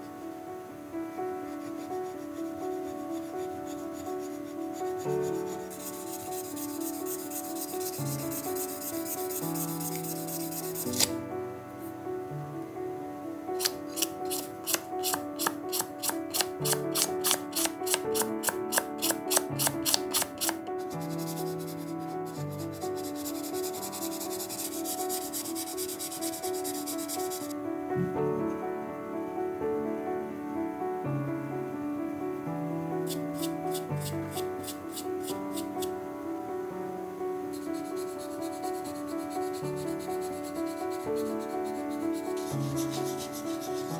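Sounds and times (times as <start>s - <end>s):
soft background music: 0.0s - 43.9s
abrasive pad sanding metal: 1.6s - 11.1s, 22.8s - 27.5s, 37.6s - 43.9s.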